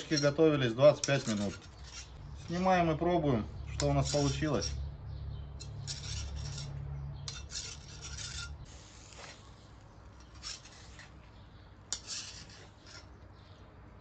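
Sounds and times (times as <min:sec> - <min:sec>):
knife scraping metal skewer: 0:00.0 - 0:02.8, 0:03.6 - 0:04.8, 0:05.6 - 0:09.2, 0:10.2 - 0:11.2, 0:11.9 - 0:13.2.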